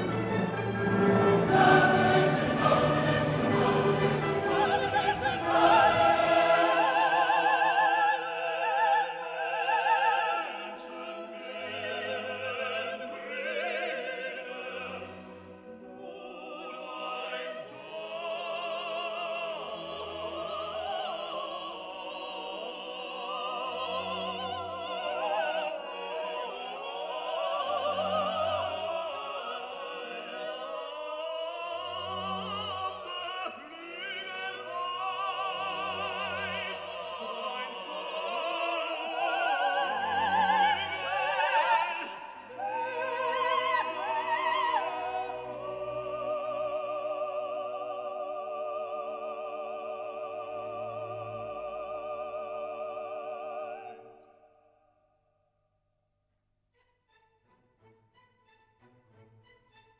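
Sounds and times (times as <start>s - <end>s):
operatic singing: 0.0s - 54.7s.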